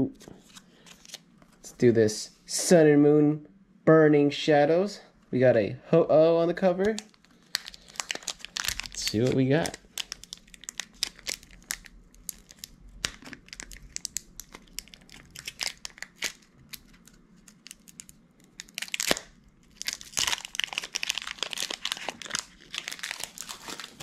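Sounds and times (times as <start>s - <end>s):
foil wrapper crinkling and tearing: 6.8s - 24.0s.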